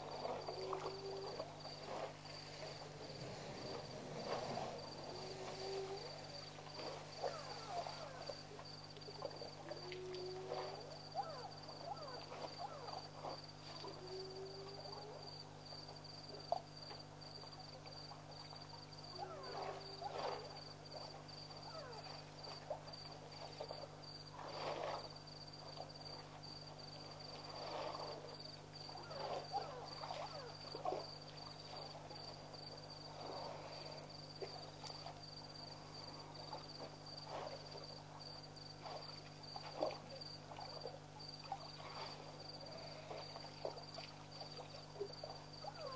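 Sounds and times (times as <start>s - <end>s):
low rising animal calls: 0.0s - 8.6s
elephants splashing water: 0.0s - 13.7s
high insect trill: 0.0s - 45.9s.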